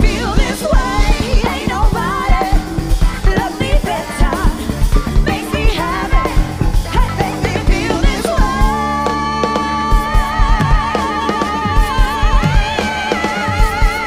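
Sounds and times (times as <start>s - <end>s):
bass guitar: 0.0s - 14.0s
drum kit beat: 0.0s - 14.0s
electric guitar: 0.0s - 14.0s
person singing: 0.0s - 14.0s.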